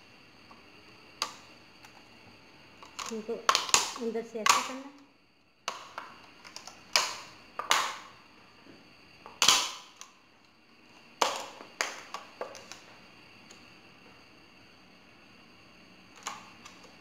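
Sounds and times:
plastic bottle cracking: 2.8s - 4.7s, 5.7s - 8.1s, 9.3s - 10.1s, 11.2s - 12.8s.

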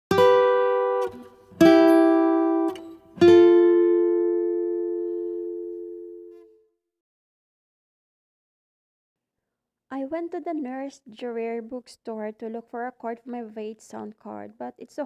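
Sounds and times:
plucked string chords: 0.1s - 6.6s.

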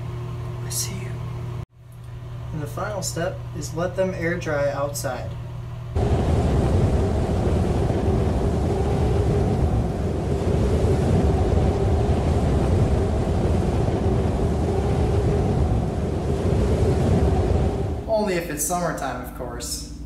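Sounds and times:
constant hum: 0.0s - 20.0s
loud rushing noise: 6.0s - 18.4s.

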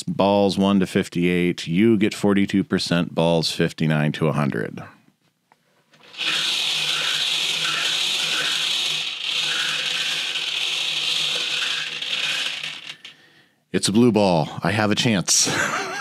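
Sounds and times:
bingo balls rattling in cage: 6.0s - 13.2s.

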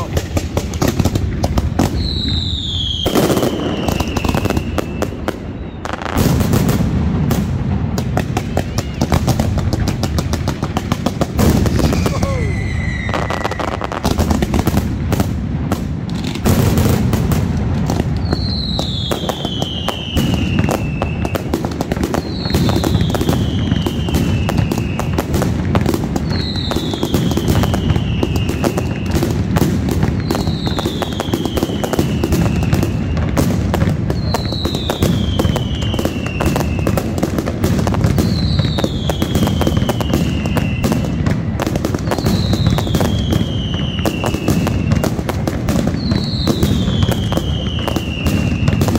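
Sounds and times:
firecrackers crackling and banging: 0.0s - 48.9s
falling whistle: 2.0s - 6.0s, 11.8s - 14.0s.

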